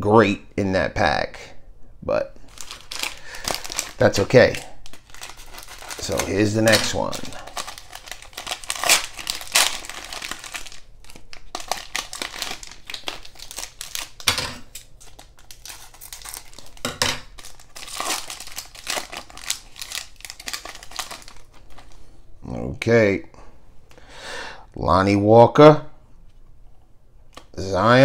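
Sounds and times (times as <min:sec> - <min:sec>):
plastic wrapper crinkling and tearing: 0:02.4 - 0:22.0.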